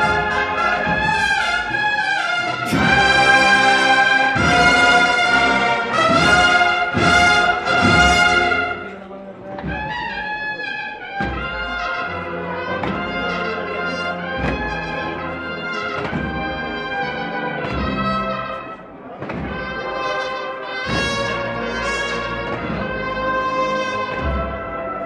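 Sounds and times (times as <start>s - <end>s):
snare and bass drums: 0.0s - 8.9s, 14.3s - 20.2s, 20.9s - 25.0s
bugles playing a march: 0.0s - 9.0s, 9.6s - 25.0s.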